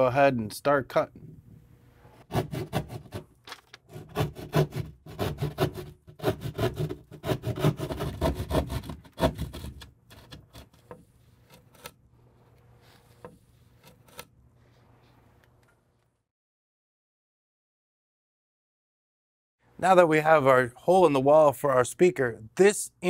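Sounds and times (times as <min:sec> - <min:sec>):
hand saw cutting drywall: 0:02.2 - 0:03.3, 0:03.9 - 0:12.0.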